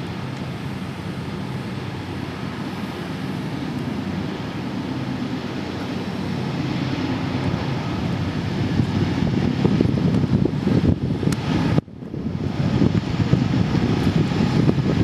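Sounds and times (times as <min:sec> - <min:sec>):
diesel locomotive rumble: 0:00.0 - 0:15.0.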